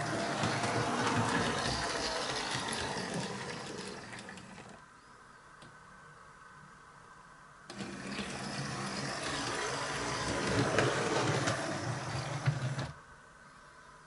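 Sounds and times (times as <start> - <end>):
locomotive sound effects: 0.0 - 4.8.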